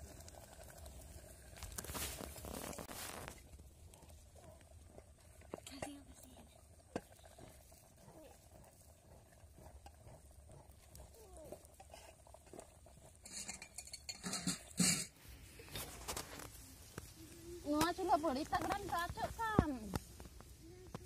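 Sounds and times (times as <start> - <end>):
steel plates clinking: 13.2 - 15.1.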